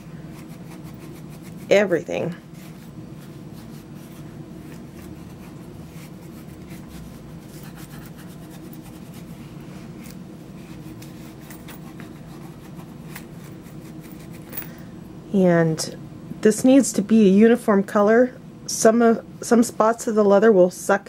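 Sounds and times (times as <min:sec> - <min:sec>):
low steady hum: 0:00.0 - 0:21.0
dauber scratching leather: 0:00.3 - 0:01.8, 0:02.5 - 0:09.4, 0:10.0 - 0:14.5.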